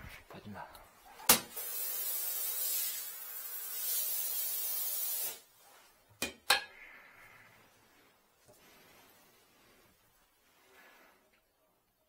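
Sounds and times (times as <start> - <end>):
shower water spraying into bathtub: 1.2 - 5.7.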